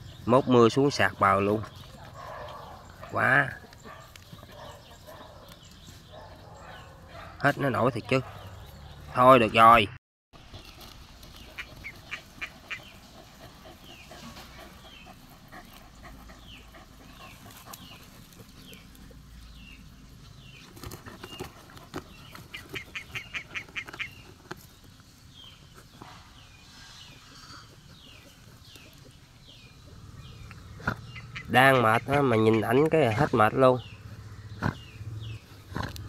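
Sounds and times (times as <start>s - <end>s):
birds chirping: 0.0s - 36.0s
dog digging and scratching soil: 0.5s - 9.2s, 10.4s - 29.8s.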